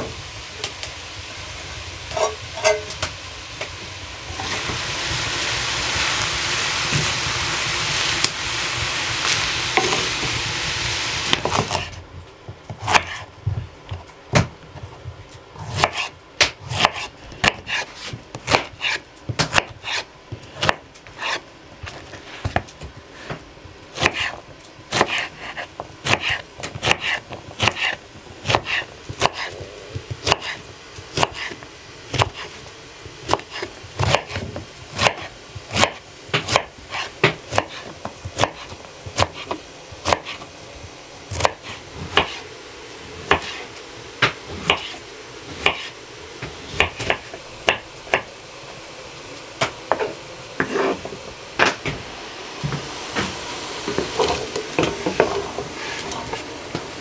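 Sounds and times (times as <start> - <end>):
loud steady hiss: 0.0 - 12.1, 15.6 - 57.0
knife chopping on wooden board: 11.3 - 11.9, 12.7 - 13.3, 15.6 - 20.0, 24.0 - 29.5, 30.2 - 32.5, 33.2 - 40.5, 41.3 - 42.4, 43.3 - 43.6, 44.2 - 45.0, 45.6 - 45.9.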